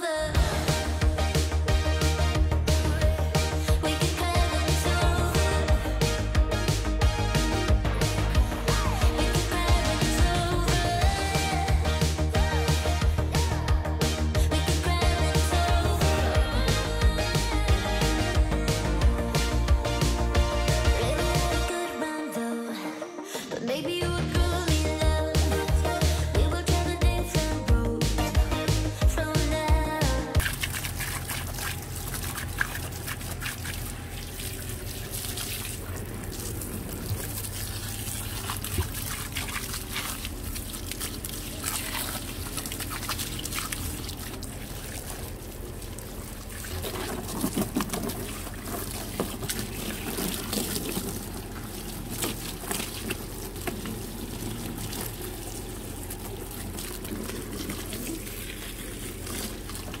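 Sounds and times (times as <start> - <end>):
hose water spraying: 27.4 - 60.0
water splashing on concrete: 30.4 - 60.0.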